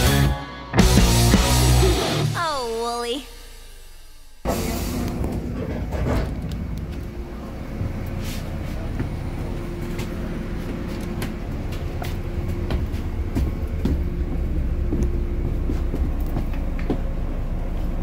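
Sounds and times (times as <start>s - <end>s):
bus engine rumble: 4.3s - 18.0s
bodywork rattles and clicks: 10.9s - 17.2s.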